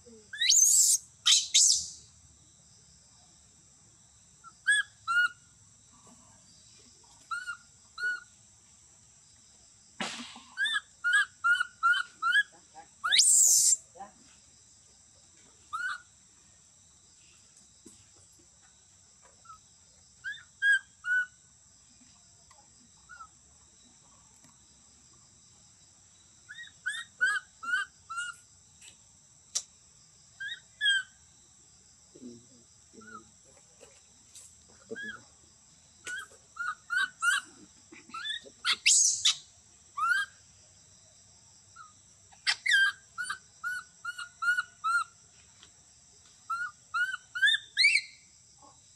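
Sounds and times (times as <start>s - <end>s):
baby monkey shrill cry: 0.4s - 2.0s, 10.6s - 13.8s, 15.7s - 16.0s, 26.5s - 28.4s, 36.1s - 37.5s, 38.2s - 39.4s, 40.0s - 40.4s, 42.4s - 45.1s, 46.5s - 48.2s
baby monkey squeaky chirps: 0.4s - 2.0s, 4.6s - 5.4s, 7.3s - 8.3s, 10.6s - 13.8s, 15.7s - 16.0s, 20.2s - 21.3s, 26.5s - 28.4s, 30.4s - 31.1s, 36.1s - 40.4s, 41.8s - 45.2s, 46.5s - 48.2s.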